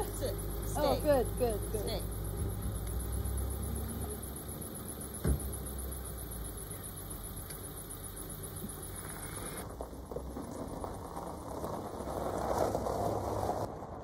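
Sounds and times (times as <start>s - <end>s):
car engine idling: 0.0s - 12.2s
thump: 5.1s - 5.7s.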